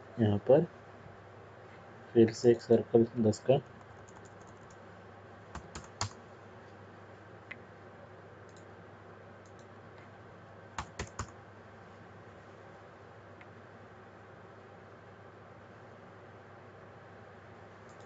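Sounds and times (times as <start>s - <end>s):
low hiss: 0.0s - 18.0s
keyboard and mouse clicks: 3.8s - 4.8s, 5.5s - 6.2s, 10.8s - 11.3s.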